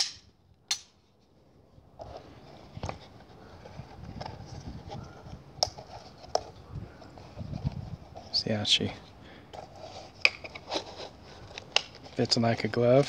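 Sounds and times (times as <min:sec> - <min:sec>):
sharp pistol click: 0:00.0 - 0:00.9.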